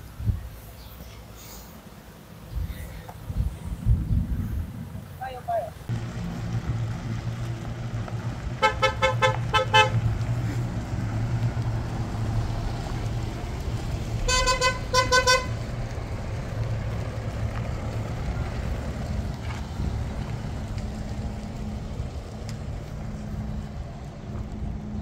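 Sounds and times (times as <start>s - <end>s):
vehicle engine drone: 5.8s - 25.0s.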